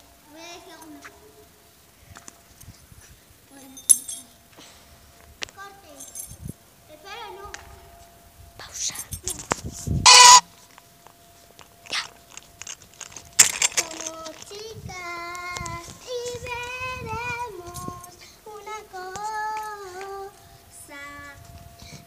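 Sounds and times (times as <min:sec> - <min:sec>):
girl singing long notes: 0:13.7 - 0:21.5.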